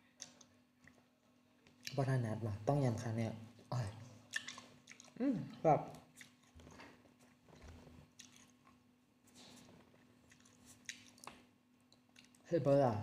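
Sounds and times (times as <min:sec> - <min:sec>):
chewing cherries: 0:03.6 - 0:12.5
soft mouth clicks: 0:04.3 - 0:05.2.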